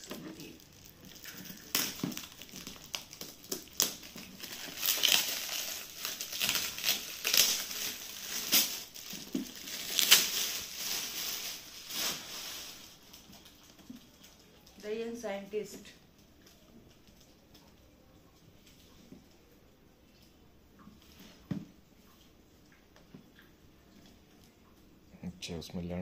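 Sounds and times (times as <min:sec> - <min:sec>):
metallic gift wrap crinkling: 0:00.0 - 0:17.9.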